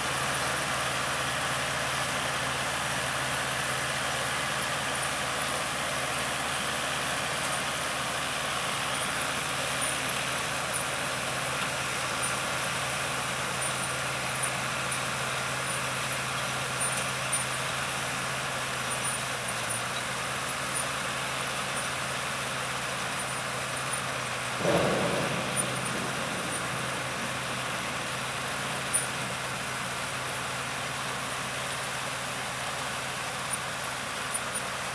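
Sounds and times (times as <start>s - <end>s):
tractor engine running: 0.0s - 34.9s
harvester machinery clattering: 0.4s - 34.9s
loud thump: 24.6s - 30.2s.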